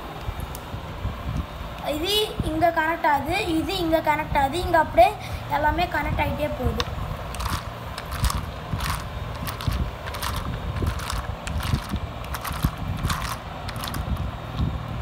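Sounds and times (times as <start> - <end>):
plastic gears clicking: 7.3 - 14.2
small electric motor hum: 7.3 - 14.3.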